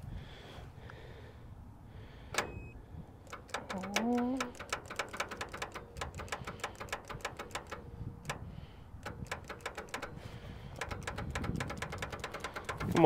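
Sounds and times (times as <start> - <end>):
rapid electrical clicking: 3.2 - 13.0.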